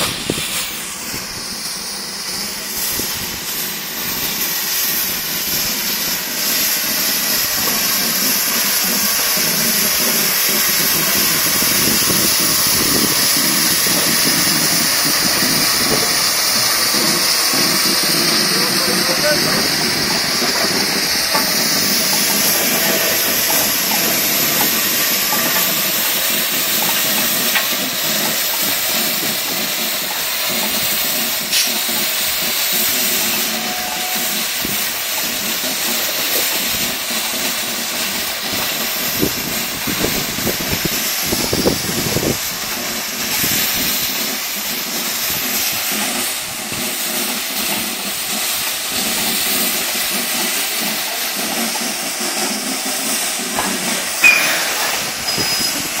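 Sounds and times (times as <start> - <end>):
steam hissing: 0.0 - 56.0
steam locomotive moving slowly: 0.0 - 56.0
sharp metal clanks: 53.6 - 56.0.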